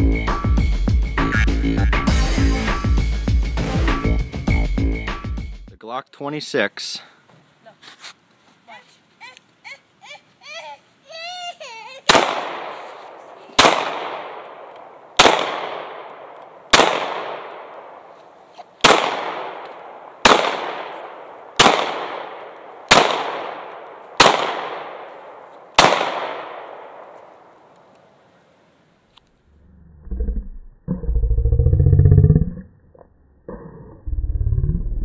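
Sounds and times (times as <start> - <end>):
pistol shots echoing: 12.1 - 18.1, 18.8 - 27.5.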